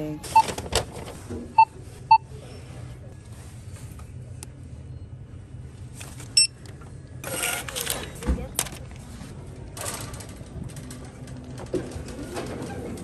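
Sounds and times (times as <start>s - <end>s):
low store hum: 0.0s - 13.0s
checkout terminal beeps: 0.1s - 0.6s, 1.5s - 2.5s, 6.3s - 6.6s.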